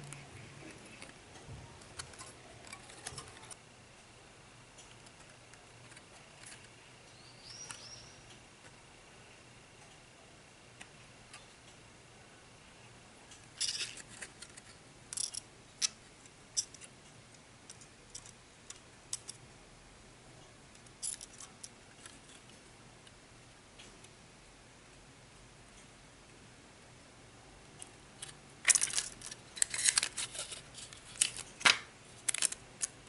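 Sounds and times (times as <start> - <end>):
wire and plastic crackling: 0.0 - 3.6, 27.8 - 33.0.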